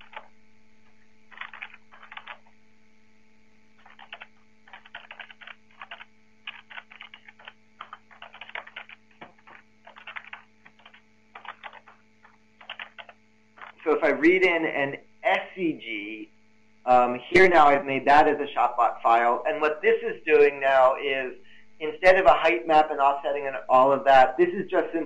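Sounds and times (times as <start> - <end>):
keyboard typing: 0.0 - 0.3, 1.3 - 2.5, 3.8 - 13.8
faint electrical hum: 0.0 - 25.0.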